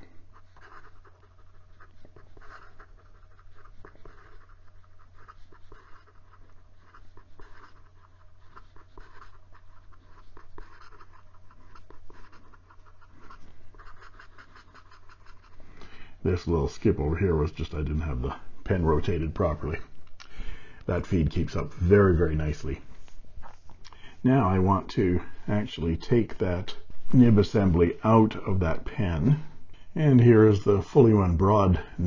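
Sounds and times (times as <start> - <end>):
pen nib scratching on paper: 0.0 - 15.6.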